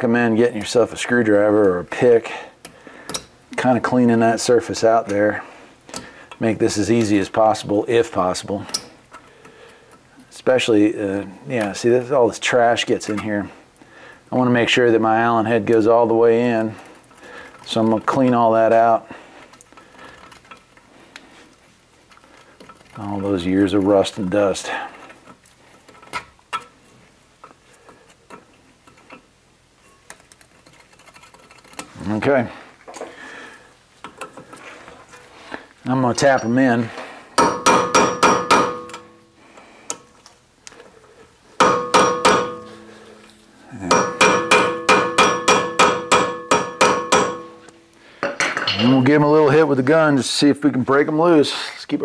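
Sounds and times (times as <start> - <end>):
hammer blows on metal: 41.6 - 43.3, 43.9 - 47.7.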